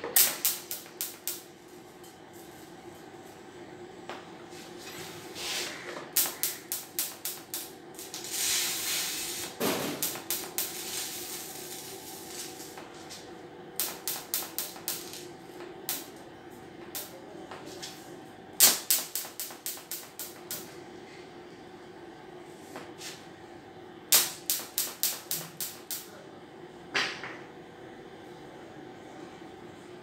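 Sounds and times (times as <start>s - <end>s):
welding arc ticking: 0.0s - 1.6s, 6.1s - 12.9s, 13.8s - 16.2s, 16.8s - 17.2s, 18.6s - 20.7s, 24.1s - 26.1s
faint steady hum: 0.0s - 30.0s.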